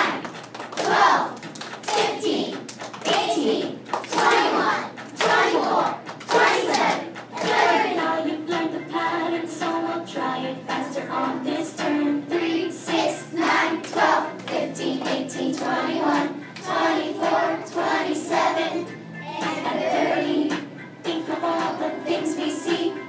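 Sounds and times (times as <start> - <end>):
children singing: 0.0 - 23.0
recorded music: 0.0 - 23.0
hands clapping: 0.1 - 8.1, 12.9 - 16.7.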